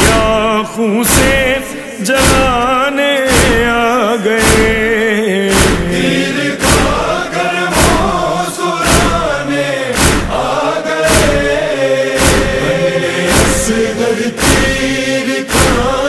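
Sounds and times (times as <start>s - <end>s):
deep thuds keeping time: 0.0s - 0.5s, 1.1s - 16.0s
male chorus chanting: 0.0s - 16.0s.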